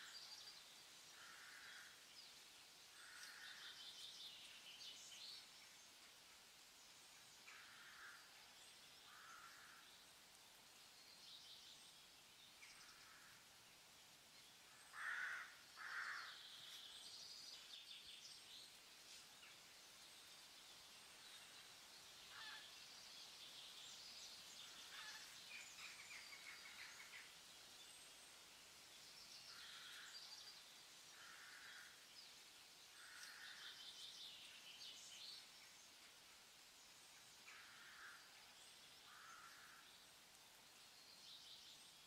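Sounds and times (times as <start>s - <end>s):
birds chirping and trilling: 21.2s - 28.4s.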